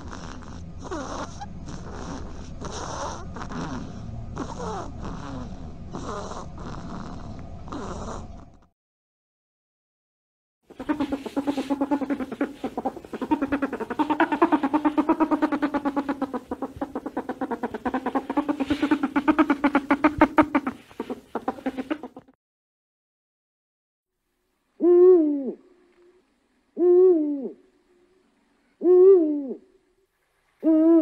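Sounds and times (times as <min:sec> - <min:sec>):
lemur buzzy pulsing call: 0:00.0 - 0:08.3, 0:10.7 - 0:22.4.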